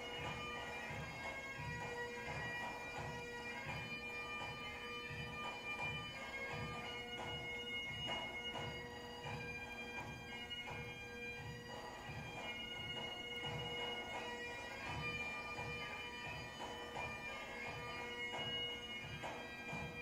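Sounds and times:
bagpipe drone: 0:00.0 - 0:20.0
bagpipe melody: 0:00.0 - 0:20.0.

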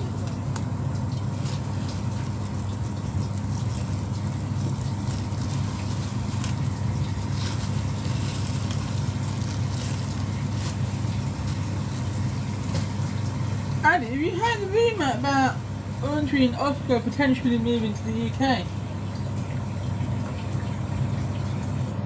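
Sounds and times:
plastic bread bag rustling: 0:00.0 - 0:14.0
kitchen machinery hum: 0:00.0 - 0:22.0.

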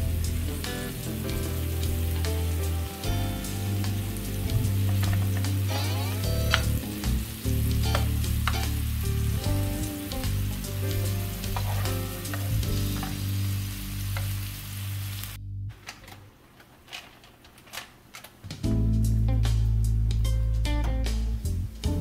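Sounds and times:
meat sizzling on a griddle: 0:00.0 - 0:15.4.

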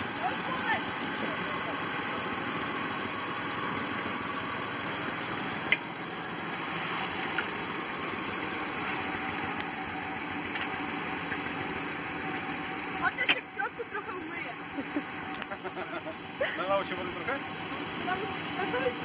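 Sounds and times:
car engine idling: 0:00.0 - 0:19.0
sharp clicks: 0:05.6 - 0:05.9.

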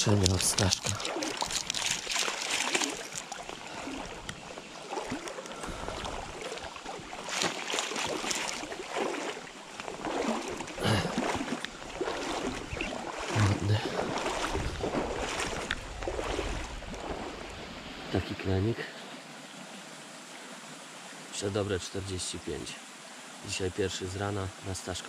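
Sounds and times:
river water splashing around net: 0:00.0 - 0:18.1
wind bumps on microphone: 0:14.4 - 0:17.5.

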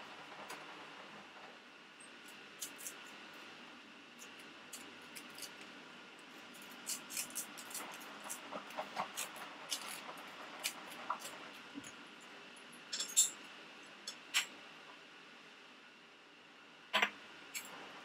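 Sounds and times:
knife scraping butter on toast: 0:06.4 - 0:12.0.

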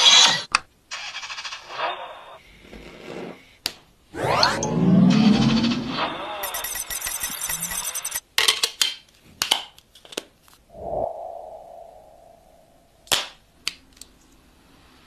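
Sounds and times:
swooping tone: 0:04.2 - 0:08.2, 0:10.8 - 0:13.1.

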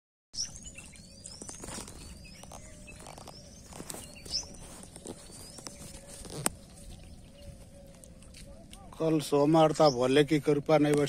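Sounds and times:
bird whistled call: 0:00.4 - 0:08.0.

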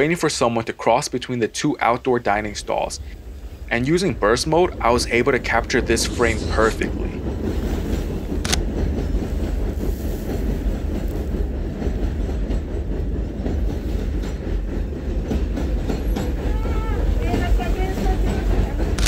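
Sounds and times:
subway train rumbling on tracks: 0:00.0 - 0:19.0.

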